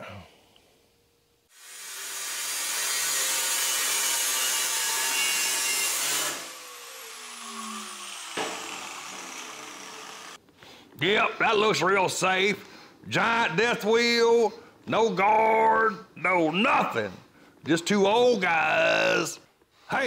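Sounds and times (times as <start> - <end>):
angle grinder cutting steel tube: 1.6 - 10.4.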